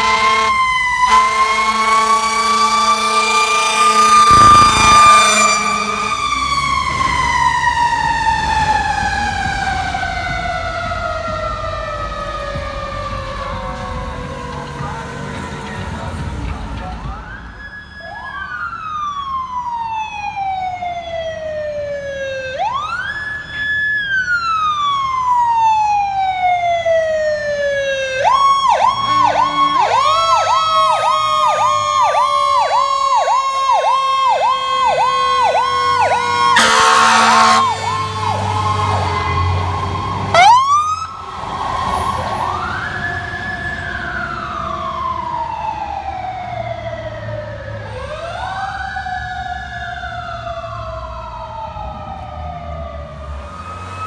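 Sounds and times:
air horn blast: 0.0 - 6.5, 29.0 - 31.1, 33.5 - 39.1
fire truck siren wailing: 0.0 - 54.0
second siren tone sliding down: 0.1 - 13.5, 17.1 - 54.0.

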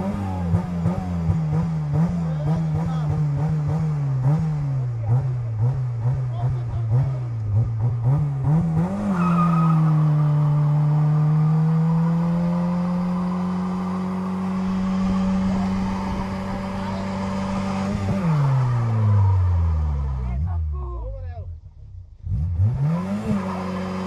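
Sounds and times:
car engine revving: 0.0 - 24.0
tyres squealing: 9.1 - 10.8.

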